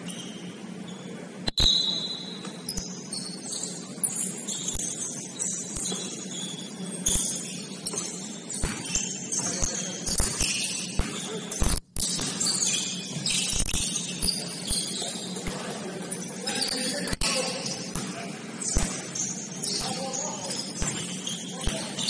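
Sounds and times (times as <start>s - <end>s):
steady low hum: 0.0s - 22.0s
basketball bouncing on floor: 7.1s - 13.9s, 20.8s - 21.9s.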